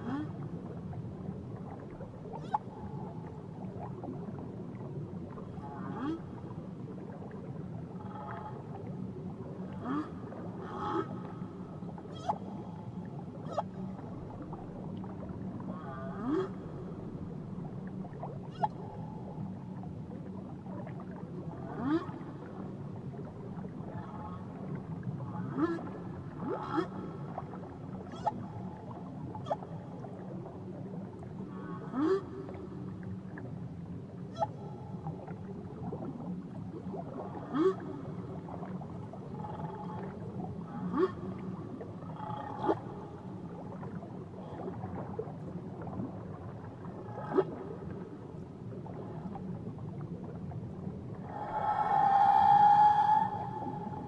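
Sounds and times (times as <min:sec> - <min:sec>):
whale calls: 0:02.2 - 0:03.2, 0:07.9 - 0:08.8, 0:09.7 - 0:14.2, 0:14.8 - 0:17.1, 0:18.4 - 0:19.6, 0:21.6 - 0:22.6, 0:23.7 - 0:30.2, 0:31.4 - 0:32.9, 0:34.3 - 0:35.2, 0:37.0 - 0:45.2, 0:46.9 - 0:47.9, 0:51.1 - 0:54.0.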